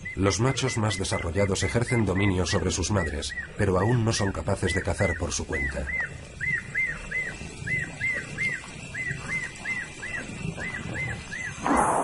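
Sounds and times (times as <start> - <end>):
lions feeding: 0.0 - 12.0
small animal chirping: 0.2 - 11.8.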